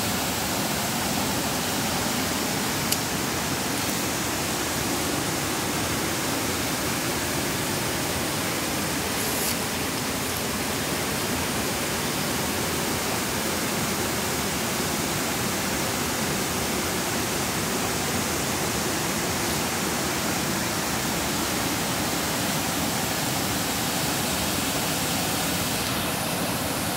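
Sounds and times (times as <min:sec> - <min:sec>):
river rushing: 0:00.0 - 0:26.9.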